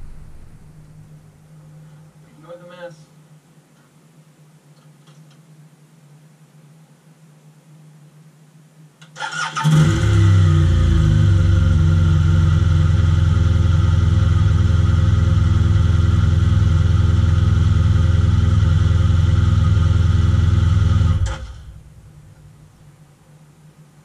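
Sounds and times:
motorcycle engine idling: 0:00.0 - 0:01.2, 0:11.3 - 0:22.6.

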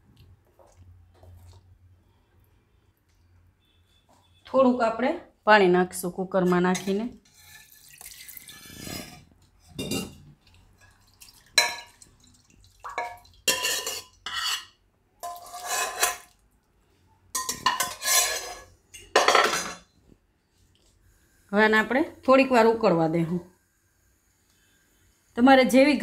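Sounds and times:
steel utensils clanking and scraping: 0:06.7 - 0:10.2, 0:12.9 - 0:16.4, 0:17.4 - 0:19.8
water pouring into steel pot: 0:07.4 - 0:09.1, 0:10.5 - 0:14.2.

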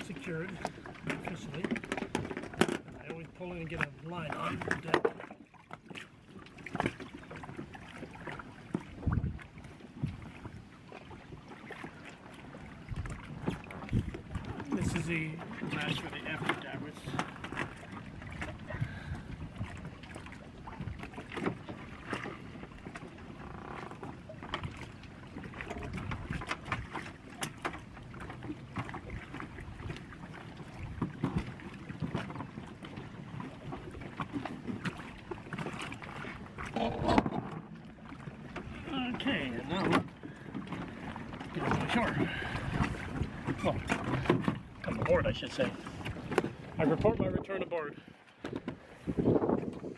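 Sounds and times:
dinghy knocking against hull: 0:00.0 - 0:47.4, 0:48.4 - 0:49.8
wind buffeting microphone: 0:08.9 - 0:10.6, 0:12.8 - 0:16.4, 0:39.7 - 0:47.7, 0:48.4 - 0:49.9.

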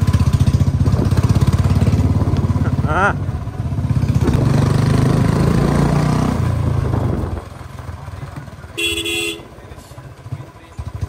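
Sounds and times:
motorcycle engine running: 0:00.0 - 0:11.0
vehicle horn honking: 0:08.7 - 0:09.6.

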